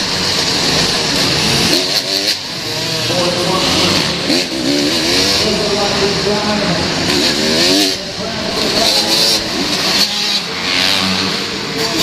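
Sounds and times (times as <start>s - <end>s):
motorbike engine revving: 0.0s - 12.0s.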